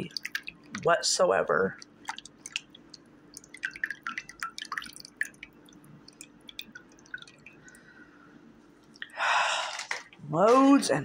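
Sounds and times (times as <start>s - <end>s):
small drips and light ticks: 0.0s - 0.9s, 1.7s - 8.0s
faint steady hum: 0.0s - 11.0s.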